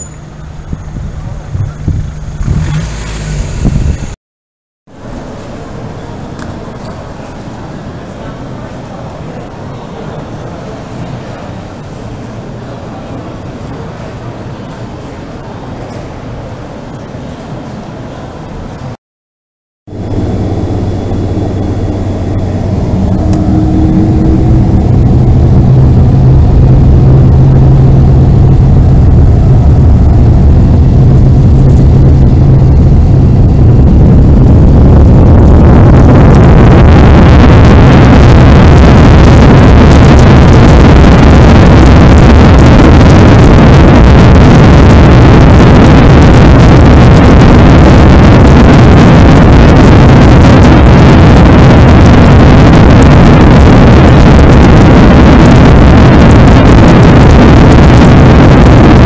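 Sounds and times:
jet engines roaring in cabin: 0.0 - 4.2, 4.9 - 19.0, 19.9 - 59.0.

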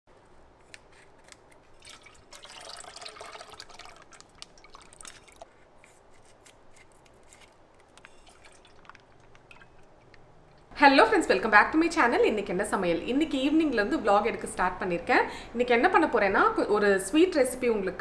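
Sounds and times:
milk pouring into steel pot: 1.8 - 5.5, 8.0 - 9.8
plastic packet handled: 3.6 - 10.0
scissors snipping: 5.8 - 7.5.

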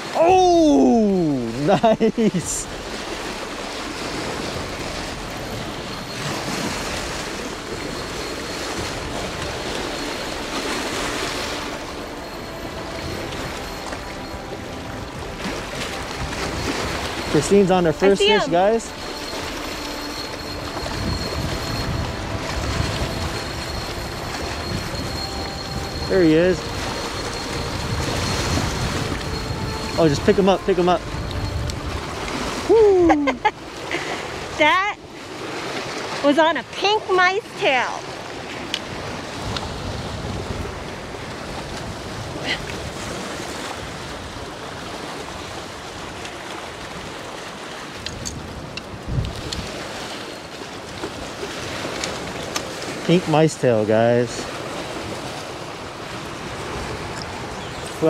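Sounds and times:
lake waves lapping on rocks: 0.0 - 58.0
wind rumbling over microphone: 20.5 - 33.6, 38.8 - 47.0, 48.0 - 49.9.

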